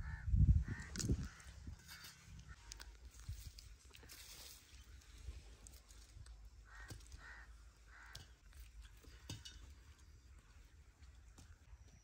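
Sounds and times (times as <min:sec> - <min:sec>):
faint bird calls: 0:06.6 - 0:10.6.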